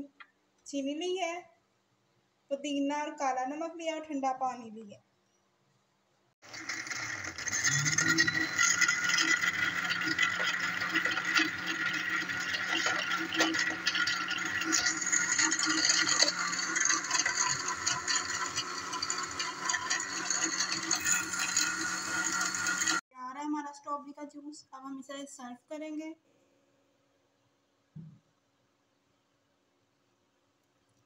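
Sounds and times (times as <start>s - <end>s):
electric blender running: 6.4s - 23.0s
jar contents rattling: 6.5s - 23.0s.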